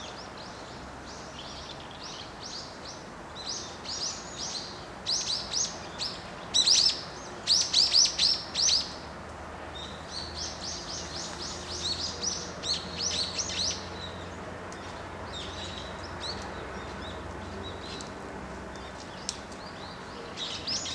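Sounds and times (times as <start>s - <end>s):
songbirds chirping: 0.0s - 20.9s.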